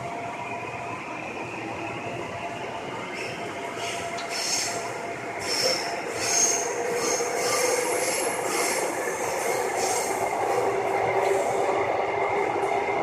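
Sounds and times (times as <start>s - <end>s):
train wheels rumbling on rails: 1.0s - 13.0s
high-pitched wheel squeal: 5.4s - 10.2s.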